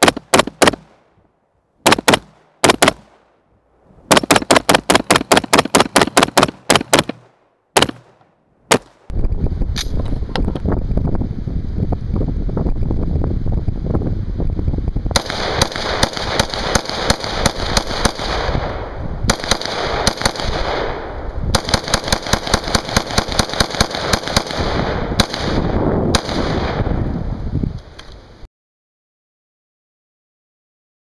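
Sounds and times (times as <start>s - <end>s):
rifle rapid gunshots: 0.0s - 1.0s, 1.8s - 3.2s, 4.1s - 9.0s, 15.2s - 26.8s.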